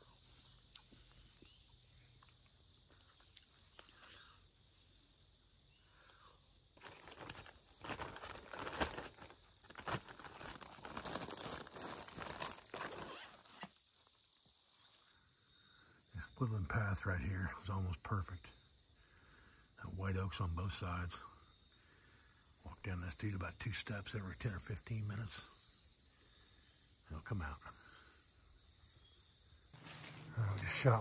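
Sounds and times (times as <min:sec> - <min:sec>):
plastic bag crinkling: 0:06.8 - 0:13.7.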